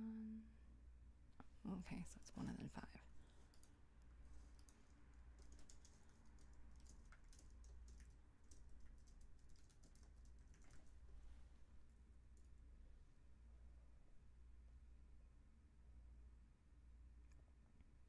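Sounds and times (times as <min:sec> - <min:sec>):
low steady hum: 0:00.0 - 0:18.0
keyboard typing: 0:03.4 - 0:03.8, 0:04.4 - 0:11.0.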